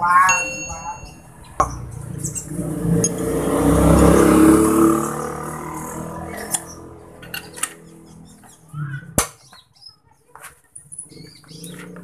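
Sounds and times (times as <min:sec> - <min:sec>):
motor vehicle passing by: 0:01.2 - 0:09.1, 0:11.1 - 0:12.0.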